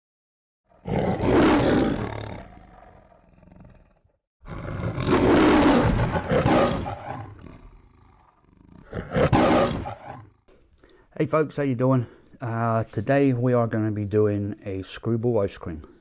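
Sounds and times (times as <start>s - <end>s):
lion roaring: 0.7s - 10.5s.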